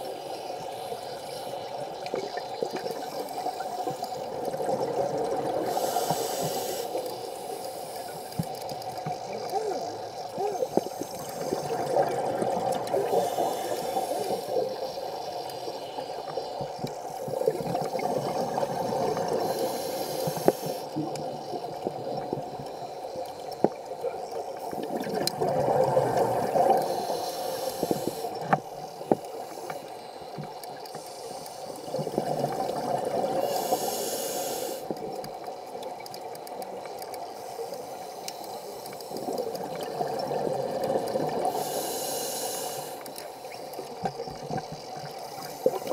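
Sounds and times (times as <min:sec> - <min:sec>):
diver breathing on a regulator: 0:05.5 - 0:08.6, 0:13.0 - 0:21.1, 0:25.9 - 0:32.1, 0:33.2 - 0:35.0, 0:37.3 - 0:39.6, 0:40.7 - 0:43.8.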